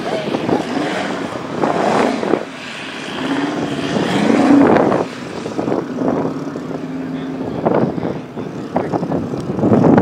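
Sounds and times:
large engine revving: 0.0 - 10.0.

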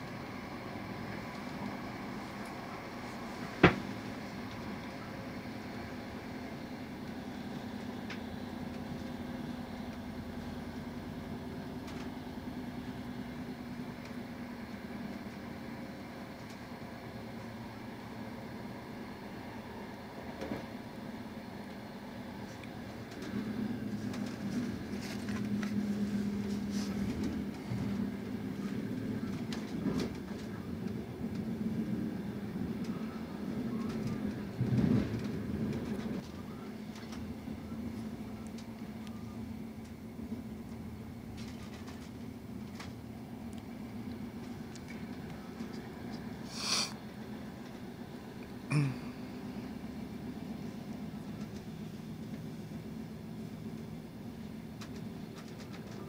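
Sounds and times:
train running rumble: 0.0 - 56.0
wheels clicking over rails: 22.5 - 39.0.

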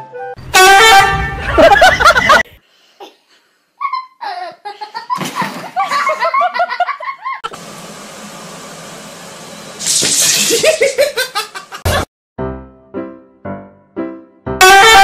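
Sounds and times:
person laughing: 1.3 - 3.2, 3.8 - 7.5, 10.4 - 12.1.

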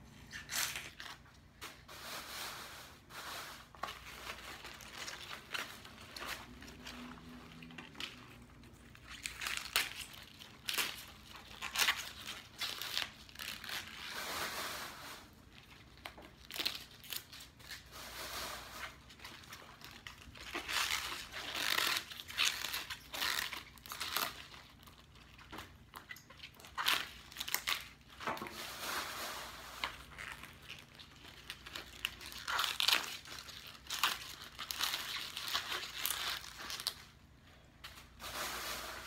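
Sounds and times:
leaves rustling and tearing: 3.4 - 37.0.

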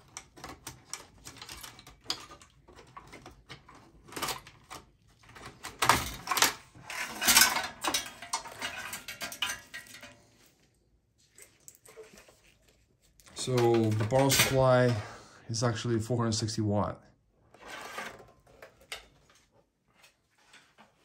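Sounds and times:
metal and plastic clicks and rattles: 0.0 - 10.4, 13.2 - 15.1
rustling and scraping: 0.0 - 15.1, 17.5 - 21.0.

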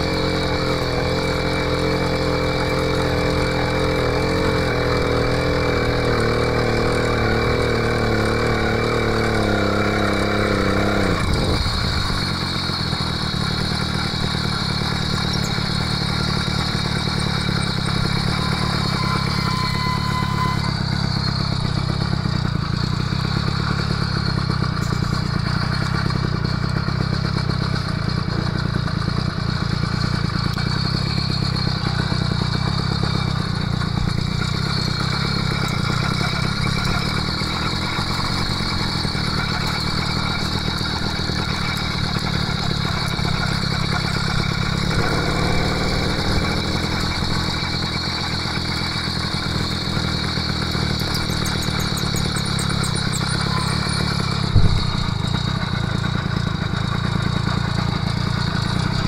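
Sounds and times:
two-stroke engine droning: 0.0 - 59.0.

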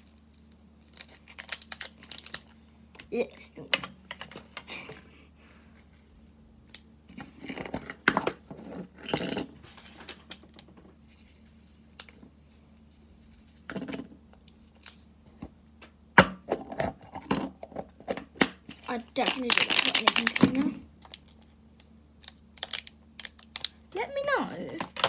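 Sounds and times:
packaging rustling and crinkling: 0.0 - 2.6, 17.0 - 21.5.

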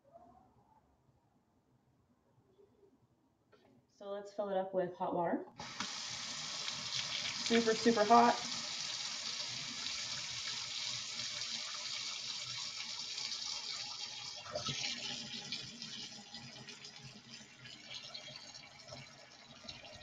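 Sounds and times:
faucet running into steel sink: 5.6 - 20.0.

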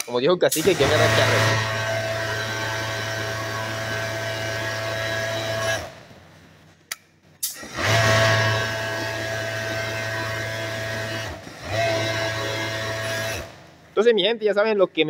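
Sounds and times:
overlock sewing machine running: 0.6 - 6.0, 7.6 - 13.7.

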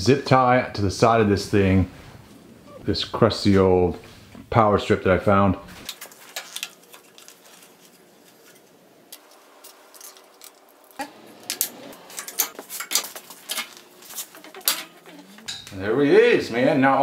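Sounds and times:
metal clinks and knocks: 8.4 - 15.8.

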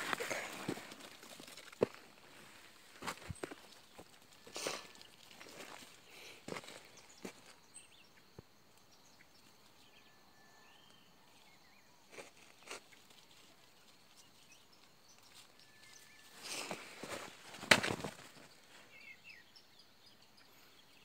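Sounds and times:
rustling and scraping in sand: 0.0 - 7.6, 12.0 - 18.9.

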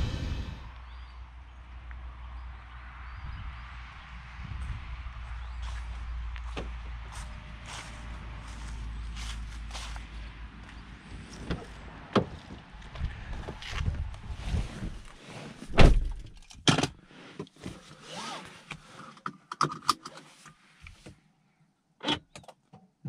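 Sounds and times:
outside rumble: 0.0 - 17.0
car door shutting: 15.7 - 16.2.

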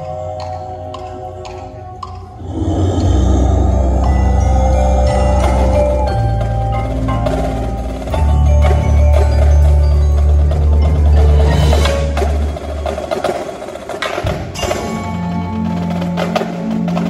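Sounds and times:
marimbas playing quick notes: 0.0 - 13.6
deep held bass notes: 2.0 - 9.4
higher bass line: 2.4 - 12.6.

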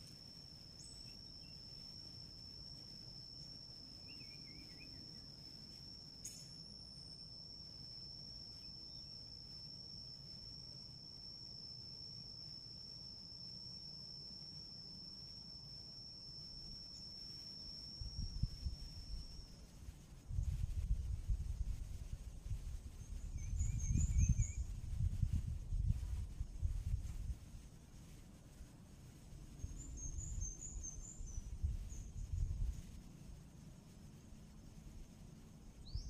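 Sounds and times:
insect drone: 0.0 - 36.0
wind buffeting microphone: 20.3 - 27.5, 30.1 - 32.8.

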